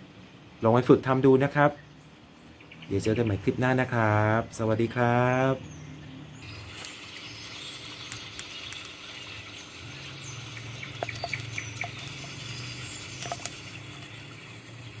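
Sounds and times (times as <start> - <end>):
low hum with hiss: 0.0 - 15.0
short high chirps and clicks: 10.8 - 14.2.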